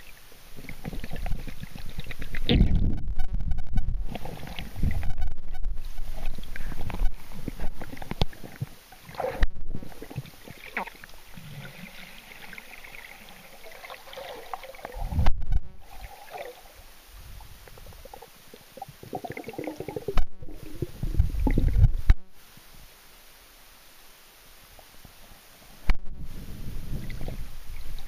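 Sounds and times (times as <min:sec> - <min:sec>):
muffled water sloshing underwater: 0:00.0 - 0:22.4.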